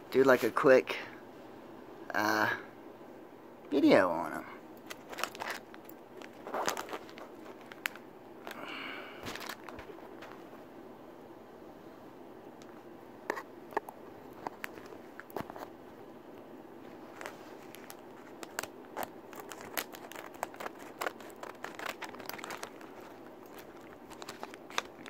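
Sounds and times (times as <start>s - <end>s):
plastic packaging crinkling: 4.8s - 10.5s, 14.3s - 15.7s, 16.9s - 25.0s.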